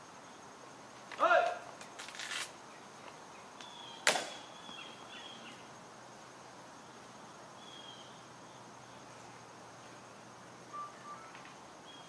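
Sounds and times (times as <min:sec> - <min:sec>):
high insect drone: 0:00.0 - 0:12.0
short high chirps: 0:10.7 - 0:11.3.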